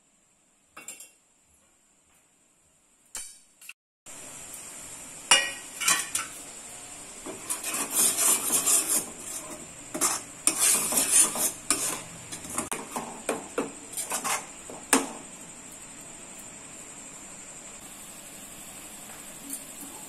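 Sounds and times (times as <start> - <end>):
metal spoon scraping pot: 7.3 - 12.7, 13.9 - 14.5.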